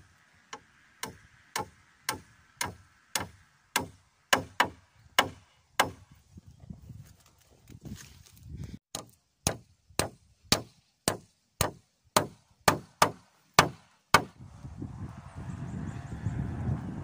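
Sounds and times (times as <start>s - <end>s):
machete chopping wood: 1.0s - 6.1s, 8.9s - 14.4s
wind buffeting microphone: 6.0s - 8.8s, 14.3s - 17.0s.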